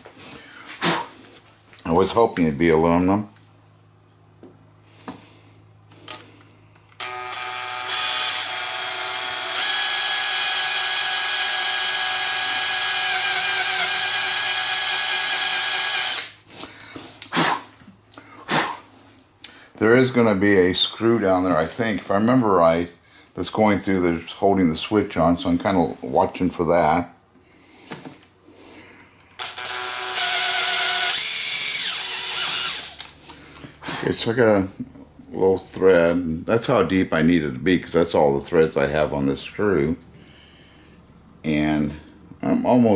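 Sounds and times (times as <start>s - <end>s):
electric drill boring into metal: 7.0s - 16.4s, 29.4s - 33.1s.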